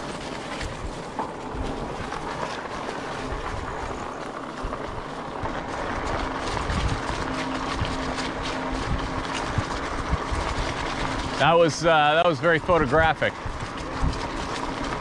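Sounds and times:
bicycle tyres rolling: 0.0 - 15.0
small rattles and clicks: 0.0 - 15.0
wind on microphone: 3.1 - 11.7, 12.7 - 15.0.

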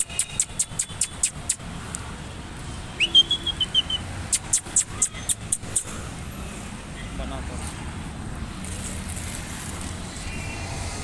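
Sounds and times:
quick light scratchy ticks: 0.0 - 2.0
street traffic hum: 0.0 - 11.0
short high whistle: 3.0 - 4.0.

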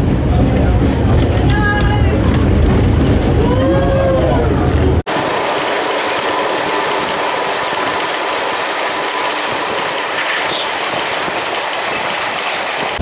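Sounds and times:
train wheels on rail: 0.0 - 13.0
wheel squeal: 9.1 - 11.4.

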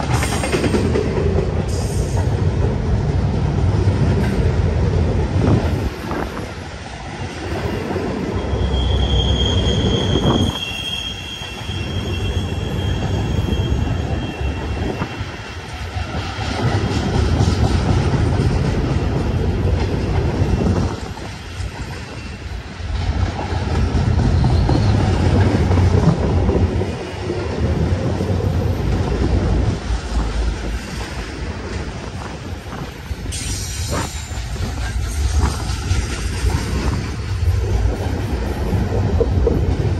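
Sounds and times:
train wheels rumbling on rail: 0.0 - 39.9
high wheel squeal: 7.7 - 15.4, 24.3 - 25.3.

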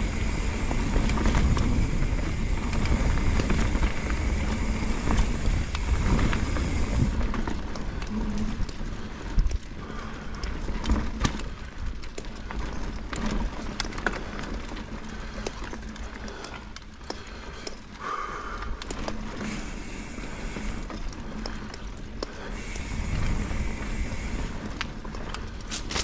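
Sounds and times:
wind on microphone: 0.0 - 7.3
bike rattling over bumps: 0.0 - 26.0.

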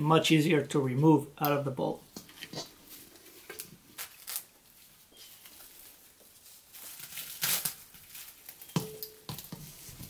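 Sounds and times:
cling wrap crinkling: 2.2 - 10.0
wrap pulled off roll: 6.8 - 8.7.

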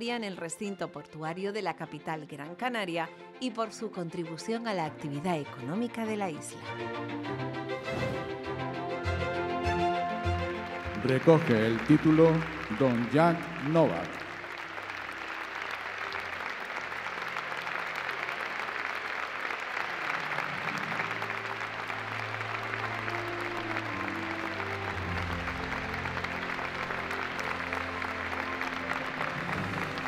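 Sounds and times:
instrumental music: 2.0 - 18.6, 20.0 - 30.0
audience applauding: 9.0 - 30.0.

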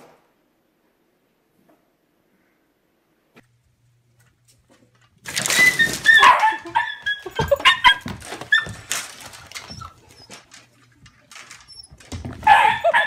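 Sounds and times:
dogs scuffling knocks: 4.2 - 13.0
dogs yipping and barking: 5.4 - 10.6, 11.3 - 13.0.

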